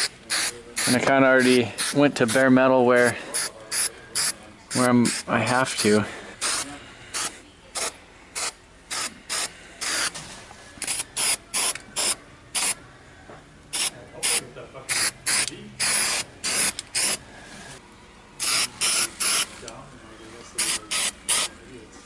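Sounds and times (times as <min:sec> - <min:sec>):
aerosol can spraying: 0:13.8 - 0:17.2, 0:18.4 - 0:19.5.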